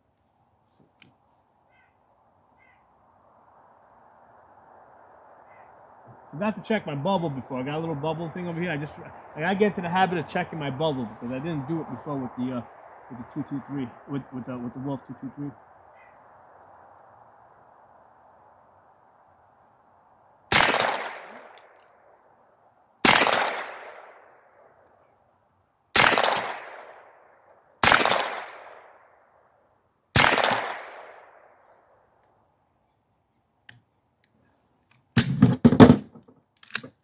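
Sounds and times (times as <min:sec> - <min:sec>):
rifle gunshots with echo: 0:20.5 - 0:21.6, 0:23.0 - 0:24.2, 0:26.0 - 0:27.1, 0:27.8 - 0:29.0, 0:30.2 - 0:31.5
gun handling clatter: 0:34.9 - 0:37.0.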